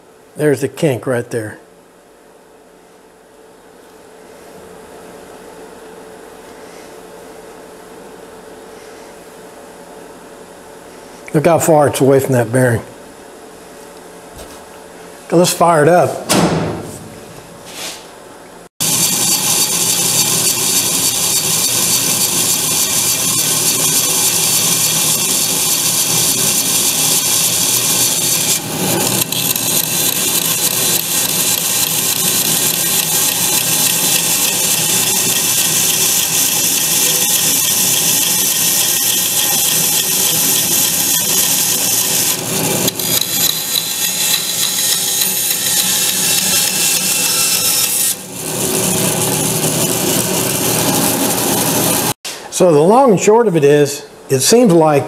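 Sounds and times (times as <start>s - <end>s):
band saw cutting wood: 18.8s - 52.2s.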